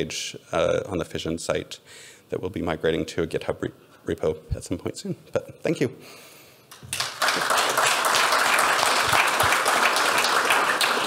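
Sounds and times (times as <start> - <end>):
audience applauding: 6.7 - 11.0.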